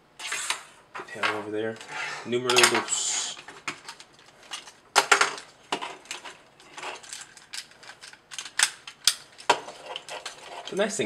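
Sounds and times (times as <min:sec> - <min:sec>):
toy figure parts clicking: 0:06.9 - 0:10.8.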